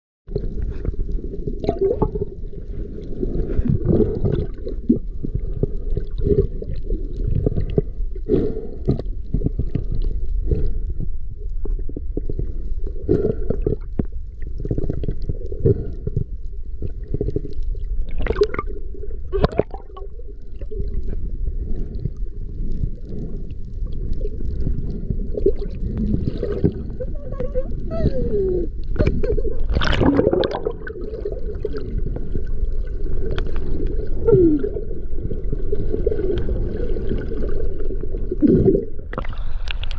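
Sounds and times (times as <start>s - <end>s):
water gurgling: 0.3s - 8.0s, 16.7s - 39.9s
muffled underwater rumble: 0.3s - 39.9s.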